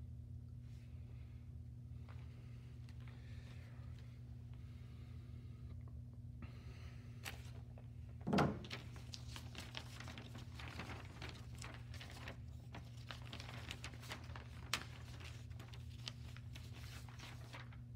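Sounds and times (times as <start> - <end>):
low hum: 9.4 - 12.4, 17.1 - 17.7.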